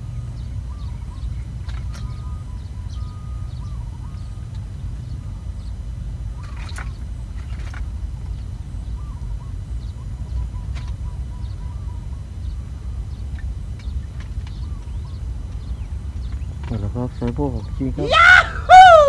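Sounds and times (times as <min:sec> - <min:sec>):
faint bird chirps: 0:00.0 - 0:19.0.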